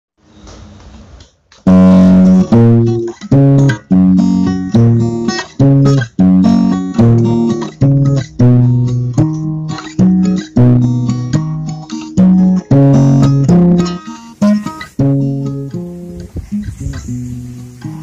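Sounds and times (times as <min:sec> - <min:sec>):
plucked guitar chords: 0:01.7 - 0:18.0
faint hiss: 0:12.0 - 0:18.0.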